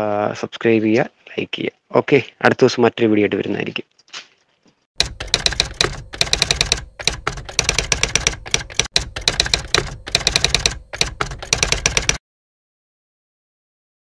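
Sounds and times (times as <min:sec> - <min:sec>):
typewriter key clacks: 0:05.0 - 0:12.2.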